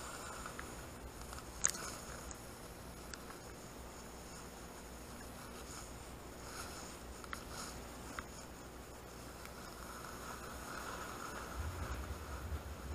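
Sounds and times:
snowboard sliding over snow: 0:09.9 - 0:12.9
low rumble: 0:11.5 - 0:12.9.

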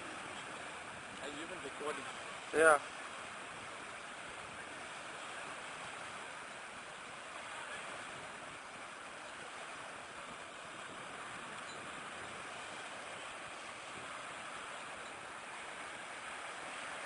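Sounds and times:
small waves washing onto shore: 0:00.0 - 0:17.0.

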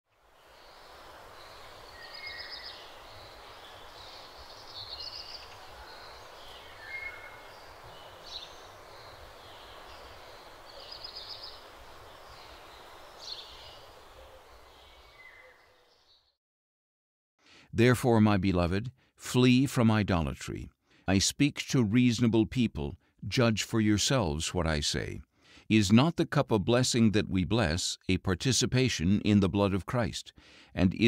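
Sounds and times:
background hiss: 0:00.1 - 0:16.1
small birds chirping: 0:00.2 - 0:16.4.

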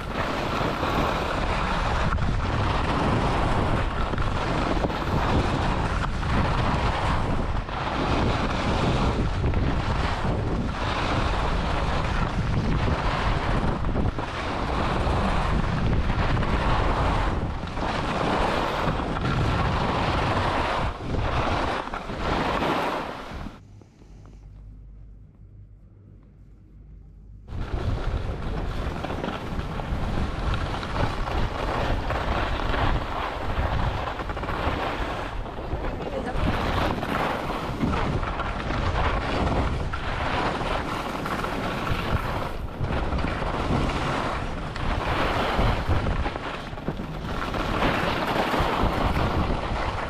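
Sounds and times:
wind rushing across microphone: 0:00.0 - 0:24.9, 0:27.4 - 0:50.0
skis hissing over snow: 0:38.9 - 0:46.6.

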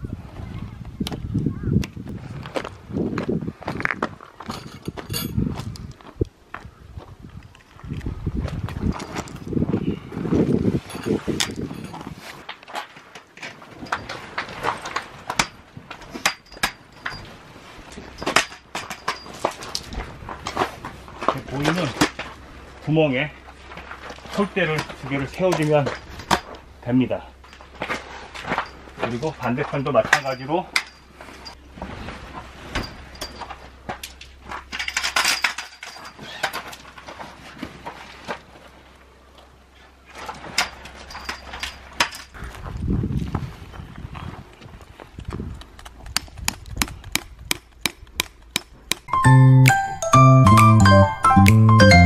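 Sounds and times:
metal tent poles clinking: 0:04.5 - 0:05.4, 0:10.8 - 0:22.4, 0:23.7 - 0:31.6, 0:32.6 - 0:37.4, 0:40.1 - 0:42.4
tent poles clicking and knocking: 0:10.8 - 0:22.4, 0:45.2 - 0:49.1
tent fabric rustling: 0:31.2 - 0:34.6.

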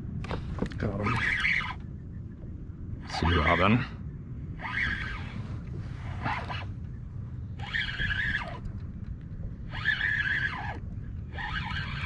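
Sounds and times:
fishing reel whirring: 0:07.6 - 0:08.6, 0:09.6 - 0:12.0.

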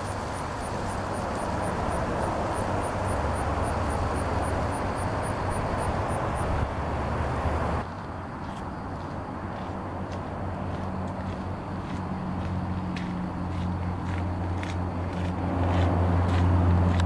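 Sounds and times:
low engine drone: 0:00.0 - 0:07.9.

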